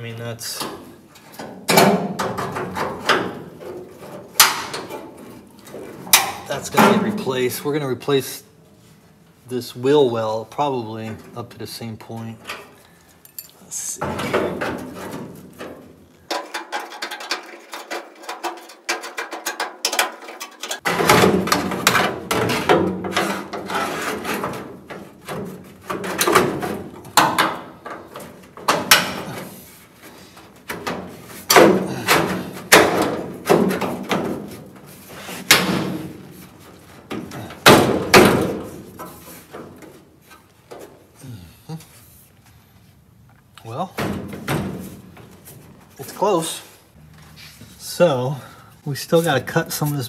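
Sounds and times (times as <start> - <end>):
metal panel rattling: 14.0 - 29.6.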